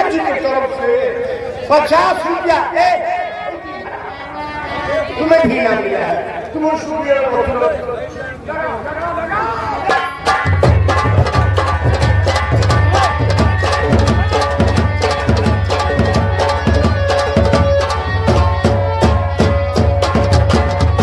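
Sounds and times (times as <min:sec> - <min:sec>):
live band music: 0:09.8 - 0:21.0
fast hand drumming: 0:10.2 - 0:21.0.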